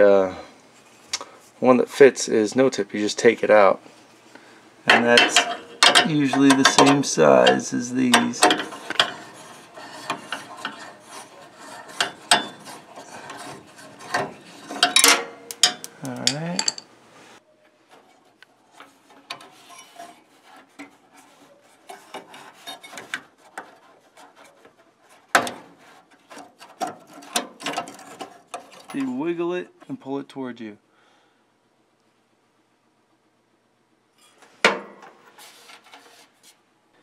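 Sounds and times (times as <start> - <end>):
screwdriver scraping and clicking metal: 4.9 - 16.8.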